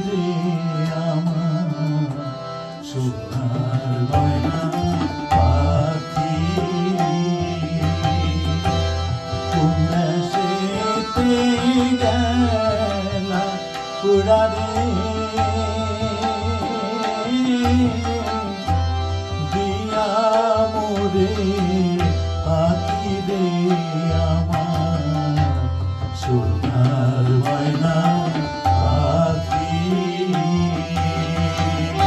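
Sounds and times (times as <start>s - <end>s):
harmonium: 0.0s - 32.0s
man singing: 0.0s - 32.0s
tabla playing rhythm: 0.0s - 32.0s.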